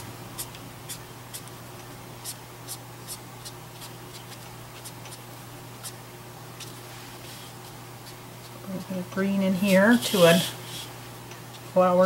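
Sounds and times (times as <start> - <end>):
brush marker scratching on card: 0.4 - 1.5, 2.2 - 5.2, 6.6 - 8.6.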